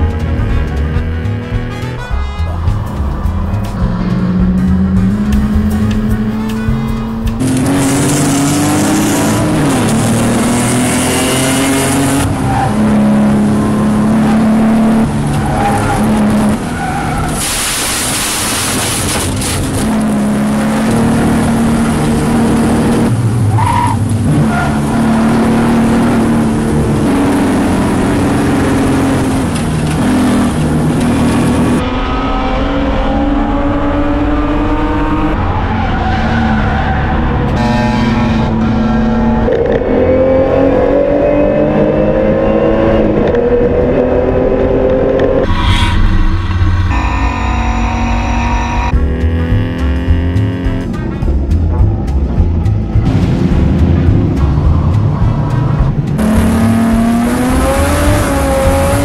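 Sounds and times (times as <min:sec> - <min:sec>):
race car engines revving: 0:00.0 - 0:59.0
tyres squealing and skidding: 0:07.4 - 0:19.4, 0:21.8 - 0:26.1, 0:35.3 - 0:40.1, 0:45.4 - 0:49.0.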